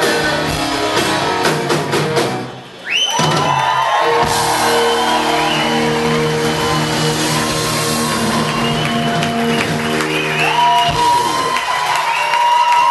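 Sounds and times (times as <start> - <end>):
rock band playing final chord: 0.0 - 2.5, 4.0 - 11.9
crowd cheering: 2.5 - 12.9
drum and cymbal hits: 3.2 - 11.6.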